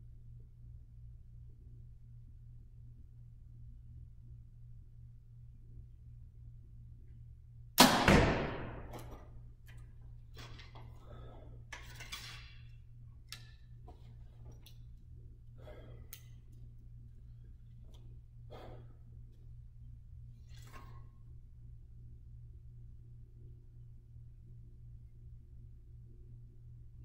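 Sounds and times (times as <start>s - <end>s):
arrow striking target: 7.8s - 9.2s.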